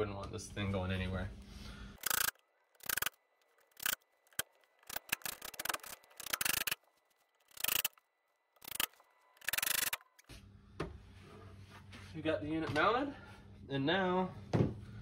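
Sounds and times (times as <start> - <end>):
drill and hardware clicks and rattles: 2.0 - 10.3.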